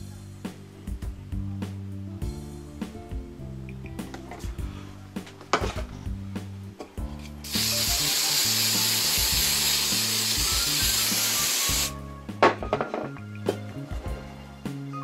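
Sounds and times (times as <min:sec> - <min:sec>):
background music: 0:00.0 - 0:15.0
aerosol can spraying hiss: 0:07.4 - 0:12.0.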